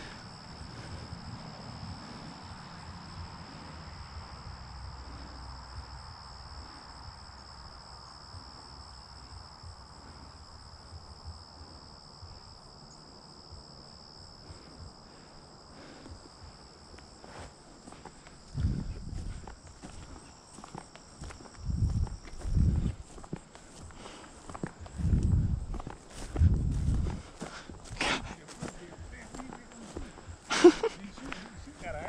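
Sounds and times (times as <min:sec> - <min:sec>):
crickets chirring: 0:00.0 - 0:32.0
low rumble: 0:18.5 - 0:19.5, 0:21.6 - 0:23.0, 0:24.9 - 0:28.1.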